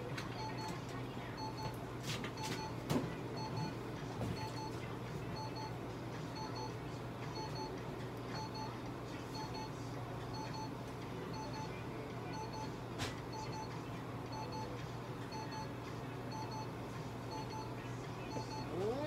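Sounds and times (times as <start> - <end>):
short beeping pips: 17.3 - 19.0.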